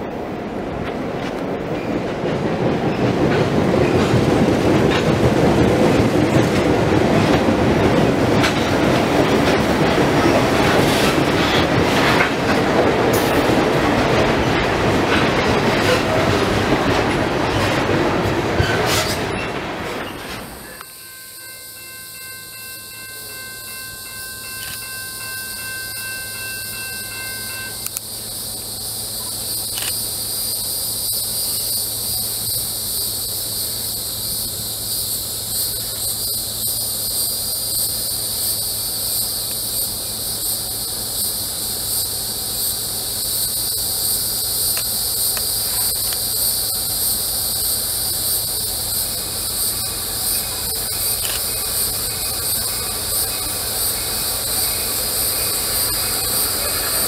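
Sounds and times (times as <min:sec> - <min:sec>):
low train rumble: 0:00.0 - 0:57.0
cicadas droning: 0:20.5 - 0:57.0.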